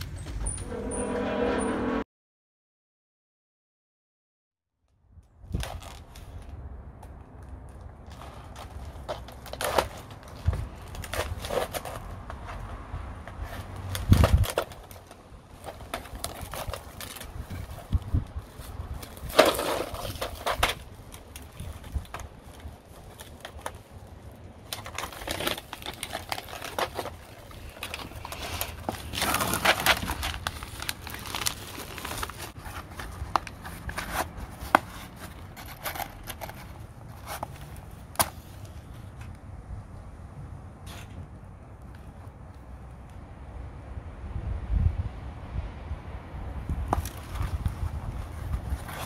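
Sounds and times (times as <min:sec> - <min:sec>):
plastic film crinkling: 0:13.8 - 0:38.2.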